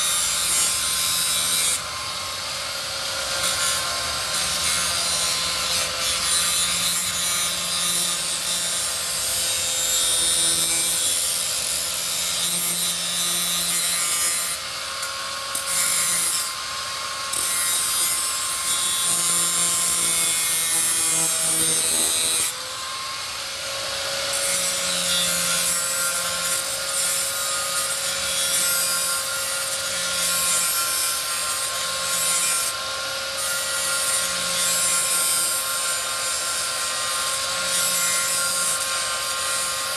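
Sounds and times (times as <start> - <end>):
angle grinder grinding metal: 0.0 - 39.9.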